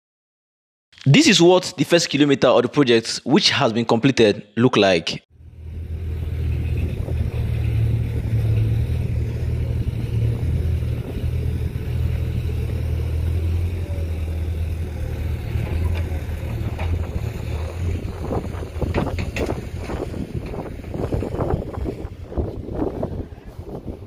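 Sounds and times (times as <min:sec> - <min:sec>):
wind buffeting microphone: 0:05.6 - 0:12.9, 0:14.7 - 0:24.0.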